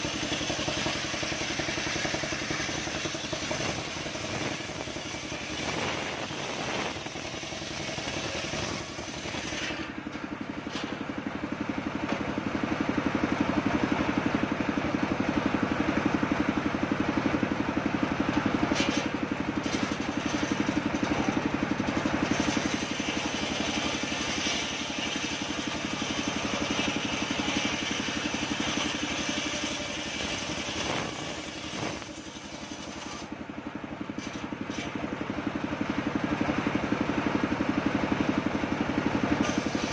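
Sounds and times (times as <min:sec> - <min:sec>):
circular saw cutting a log: 0:00.0 - 0:11.0, 0:18.4 - 0:33.4, 0:34.1 - 0:35.0, 0:39.4 - 0:39.9.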